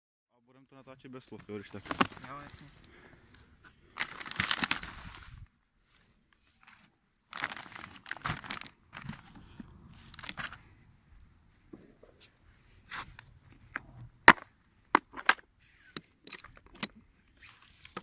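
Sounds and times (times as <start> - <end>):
plastic wrapping crinkling: 3.9 - 5.4, 7.3 - 10.6.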